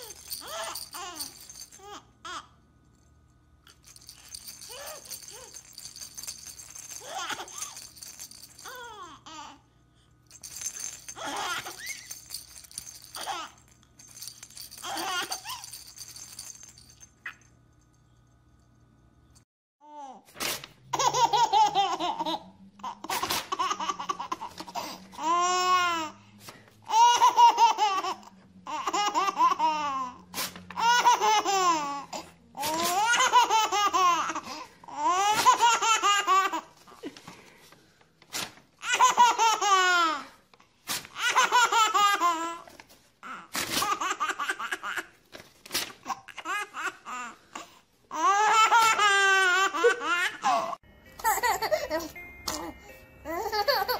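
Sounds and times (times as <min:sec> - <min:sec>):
baby laughing: 0:20.9 - 0:25.9, 0:26.9 - 0:30.1, 0:32.6 - 0:37.1, 0:38.8 - 0:40.3, 0:41.2 - 0:42.7, 0:48.1 - 0:52.7, 0:53.3 - 0:53.9.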